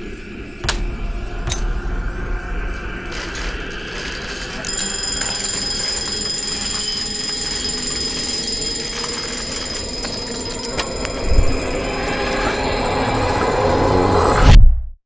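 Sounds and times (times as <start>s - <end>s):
dark low rumble: 0.0s - 14.8s
high-pitched electronic alarm tone: 4.6s - 14.2s.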